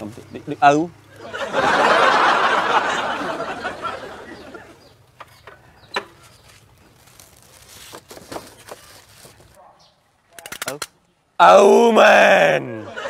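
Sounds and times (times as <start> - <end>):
group laughter: 1.1 - 4.9, 12.4 - 13.0
sharp clicks: 10.3 - 11.1.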